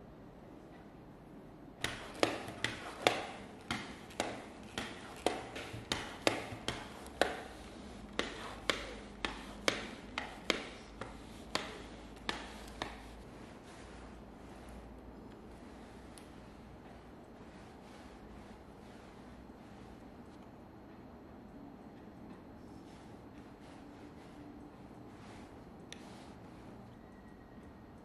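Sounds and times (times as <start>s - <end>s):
lint roller clicking on fabric: 1.8s - 20.3s.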